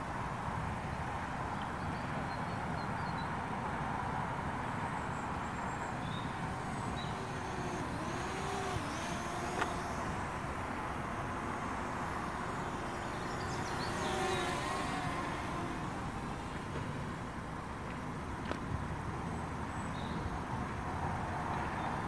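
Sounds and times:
drone motors whining: 5.9s - 17.5s
steady rushing noise: 5.9s - 17.8s
sharp click: 9.5s - 10.0s.

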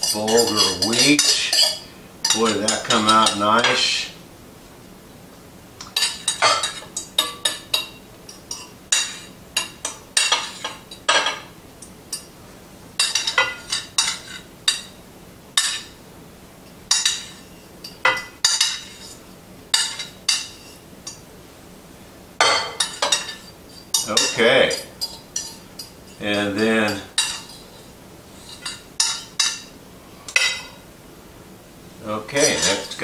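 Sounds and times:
spoon clinking against pot: 0.0s - 3.4s.

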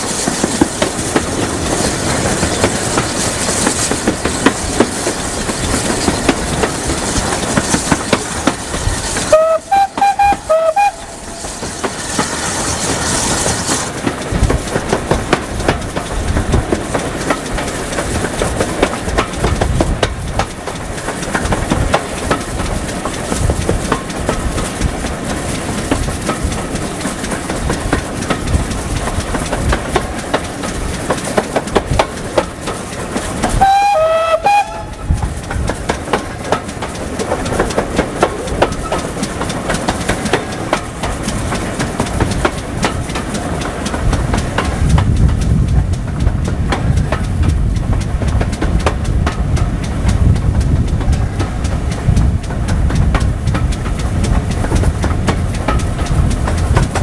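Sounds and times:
train running at speed: 0.0s - 57.0s
wheels clicking over rail joints: 0.0s - 57.0s
steam whistle blast: 9.3s - 11.5s, 33.6s - 35.2s
heavy low rumble: 44.0s - 57.0s.

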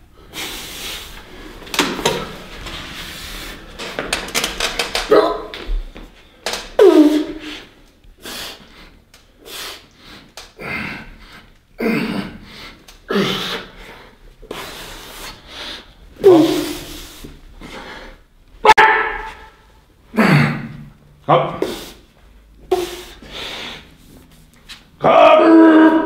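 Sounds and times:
man breathing hard and grunting: 6.9s - 18.2s.

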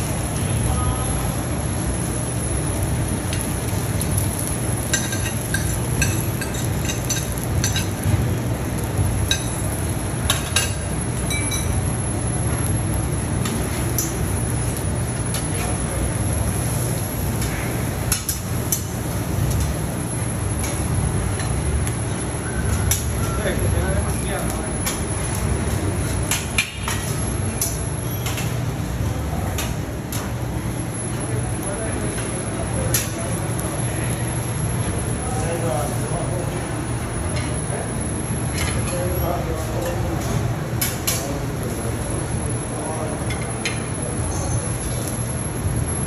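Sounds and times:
eggs frying on a griddle: 0.0s - 36.1s
steady low hum: 0.0s - 46.0s.

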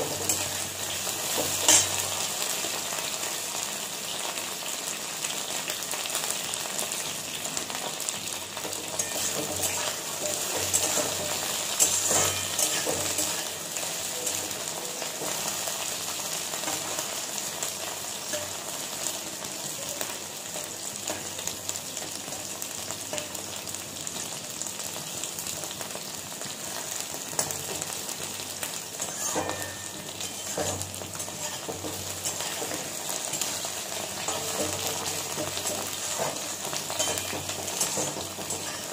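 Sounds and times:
spatula scraping a pan: 0.0s - 2.3s, 8.6s - 21.3s, 28.9s - 38.9s
okra sizzling in oil: 0.0s - 38.9s.

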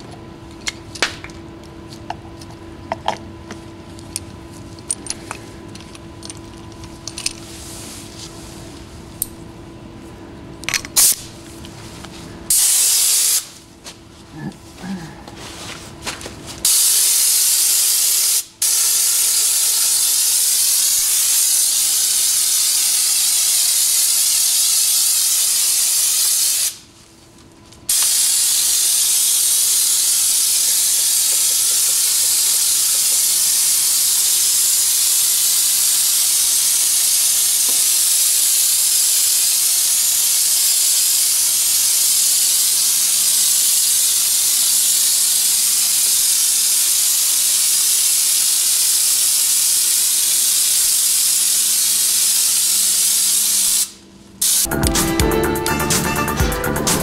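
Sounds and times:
spray gun hissing: 12.5s - 13.6s, 16.6s - 26.9s, 27.9s - 54.8s.

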